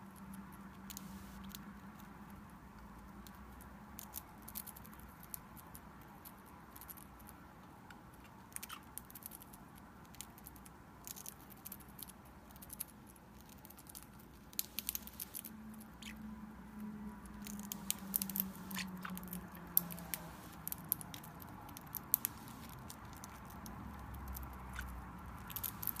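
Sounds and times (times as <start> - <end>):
parrot beak crunching cracker: 17.4 - 26.0.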